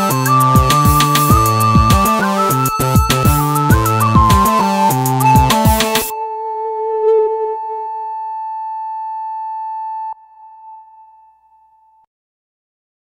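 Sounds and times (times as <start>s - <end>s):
electronic music with a beat: 0.0s - 6.2s
held electronic tone: 0.0s - 11.2s.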